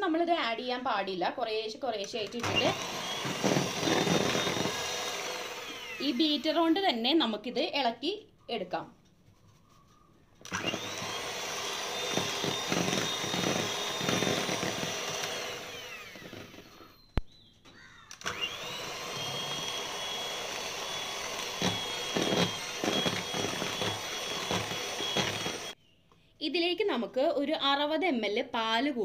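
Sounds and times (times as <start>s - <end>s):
electric hand mixer whining: 2.1s - 7.0s, 10.4s - 17.0s, 18.1s - 25.8s.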